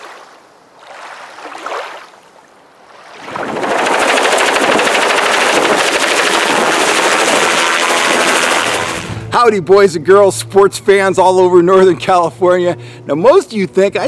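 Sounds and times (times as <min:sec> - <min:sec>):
helicopter rotor chop: 0:03.3 - 0:14.0.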